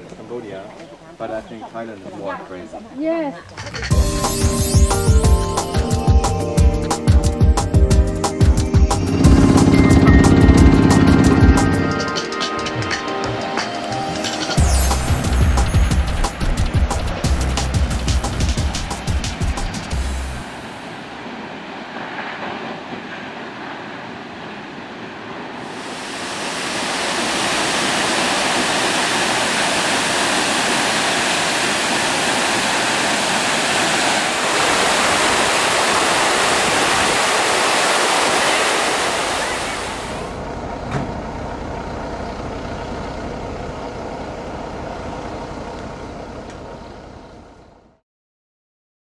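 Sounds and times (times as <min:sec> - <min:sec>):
waterfall rushing water: 0:18.5 - 0:21.8, 0:25.6 - 0:40.4.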